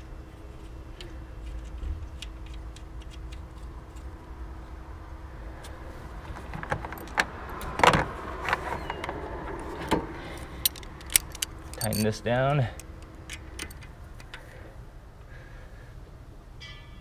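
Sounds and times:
metal hand tools clinking: 10.4 - 13.9.

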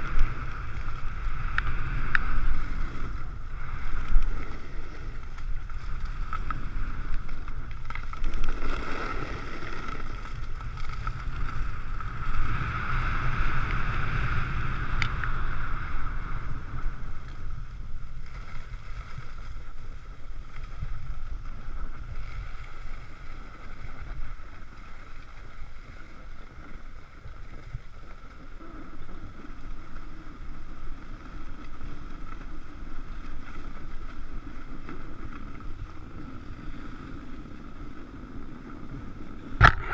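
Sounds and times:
wind buffeting microphone: 0.0 - 24.9
skis scraping on snow: 0.0 - 27.2.

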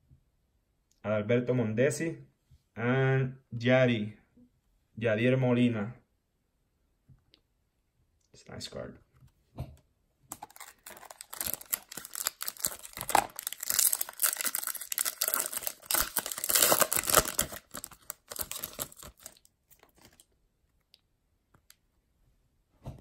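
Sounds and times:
foil wrapper tearing and crinkling: 10.3 - 20.3.

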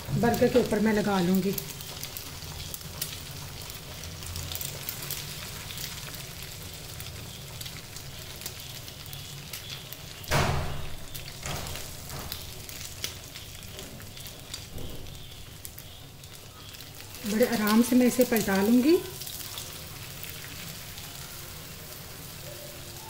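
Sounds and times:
egg sizzling in oil: 0.0 - 23.0
loud thump: 10.3 - 10.9.

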